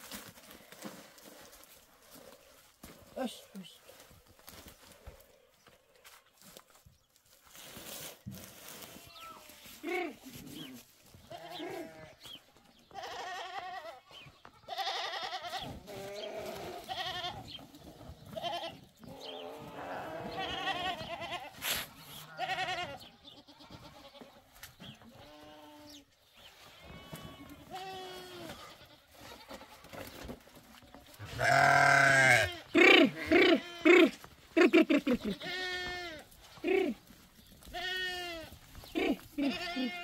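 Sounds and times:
sheep bleating: 0:11.3 - 0:12.2, 0:12.9 - 0:14.0, 0:14.6 - 0:17.4, 0:18.4 - 0:24.2, 0:31.2 - 0:34.2, 0:35.2 - 0:36.2, 0:37.7 - 0:40.0.

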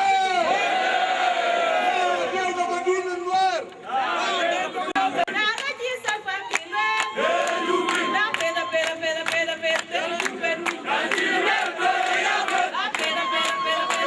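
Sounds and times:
crowd singing a chant: 0:03.8 - 0:05.5, 0:07.1 - 0:14.0.

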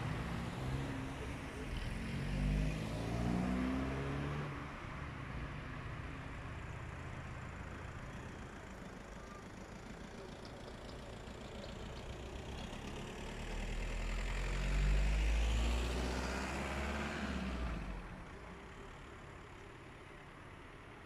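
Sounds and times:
car driving past: 0:00.0 - 0:04.6, 0:12.4 - 0:18.2.

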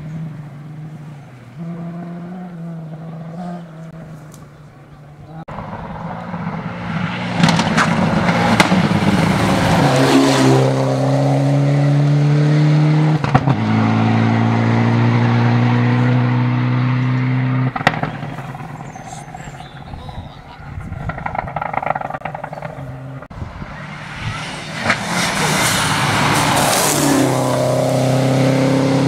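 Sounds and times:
rally car at full throttle: 0:00.0 - 0:20.0, 0:20.7 - 0:29.0
sharp cracks: 0:17.7 - 0:18.9.

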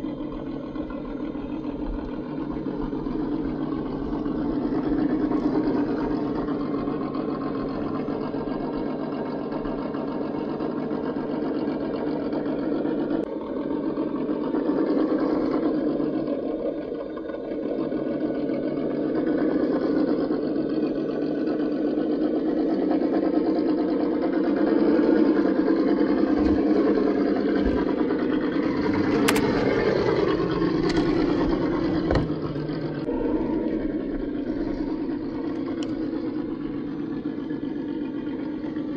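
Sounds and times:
electric motor whining: 0:00.0 - 0:38.9.

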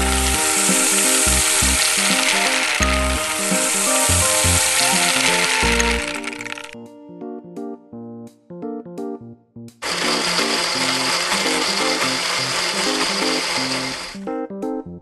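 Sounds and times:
blender motor whirring: 0:00.0 - 0:06.8, 0:09.8 - 0:14.2
light plinking tune: 0:00.0 - 0:06.8.

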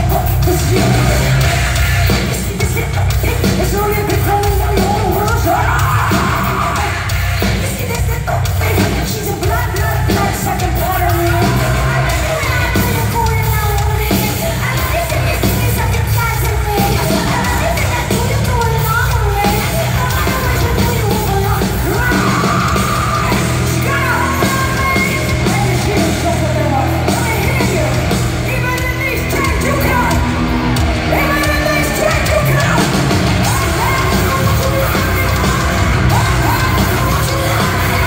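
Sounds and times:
live heavy metal band: 0:00.0 - 0:38.0
woman singing and yelling: 0:00.0 - 0:38.0.

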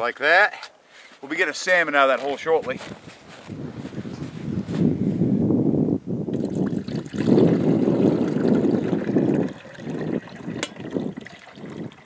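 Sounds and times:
wind noise on microphone: 0:02.6 - 0:12.0
water pouring into a reservoir: 0:06.3 - 0:12.0.

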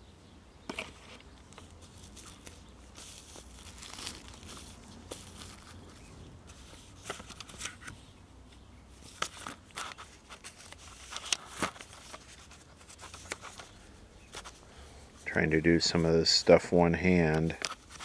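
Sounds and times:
packaging crinkling and rustling: 0:00.7 - 0:08.0, 0:09.1 - 0:14.6.

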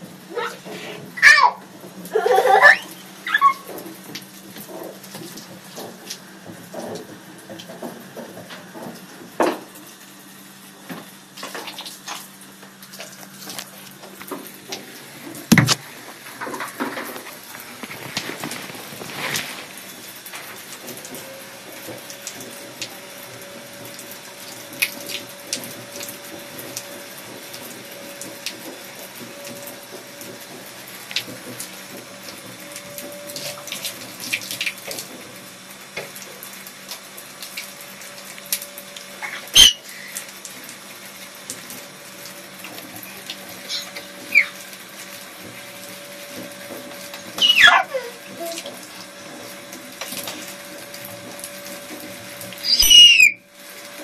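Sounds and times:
tap running into washbasin: 0:00.0 - 0:10.0, 0:10.8 - 0:54.0
short falling squeal: 0:52.6 - 0:53.4.

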